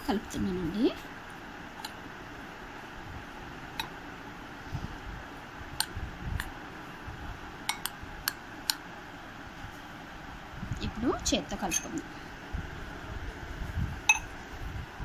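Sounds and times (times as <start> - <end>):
spoon clicking against bowl: 7.7 - 8.8.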